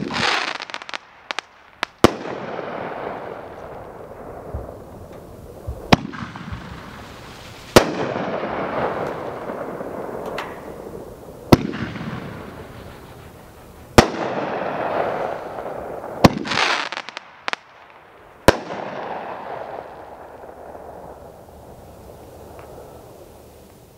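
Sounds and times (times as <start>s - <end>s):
firework bursts: 0.0s - 23.9s
small firework pops: 4.5s - 10.8s, 11.5s - 15.6s, 22.5s - 23.0s.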